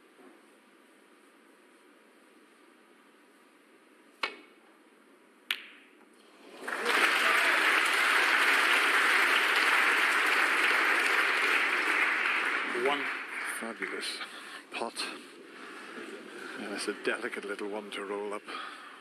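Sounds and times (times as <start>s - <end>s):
audience applause: 6.3s - 14.3s.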